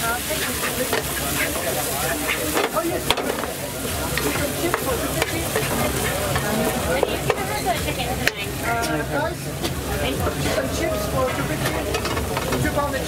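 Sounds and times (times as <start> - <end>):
spatula tossing noodles: 0.0 - 8.6
noodles sizzling in frying pan: 0.0 - 13.0.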